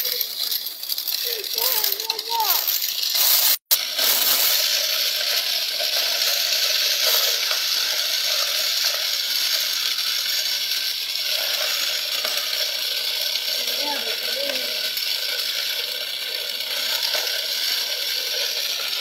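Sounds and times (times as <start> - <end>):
small toy motor whirring: 0.0 - 19.0.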